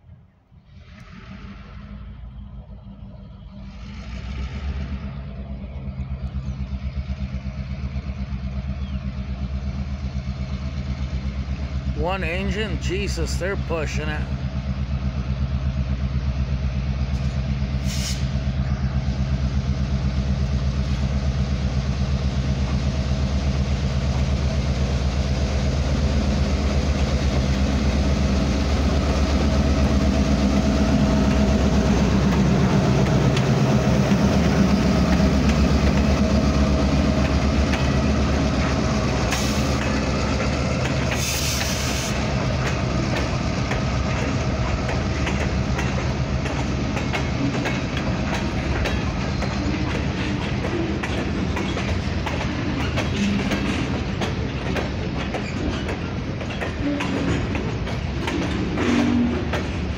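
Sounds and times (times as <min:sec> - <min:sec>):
locomotive engine passing: 0:00.1 - 0:59.9
freight cars rolling: 0:16.7 - 0:59.9.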